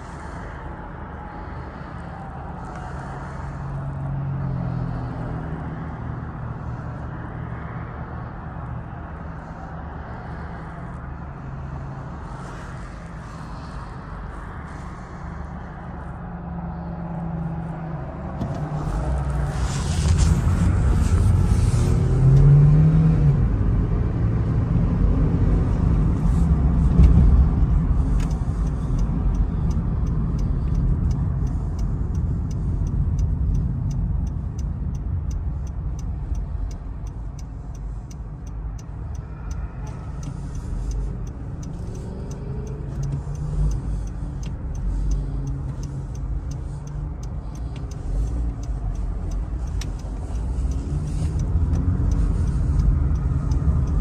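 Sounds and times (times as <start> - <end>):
car engine: 0.0 - 54.0
tyre road noise: 0.0 - 54.0
turn signal ticking: 18.2 - 54.0.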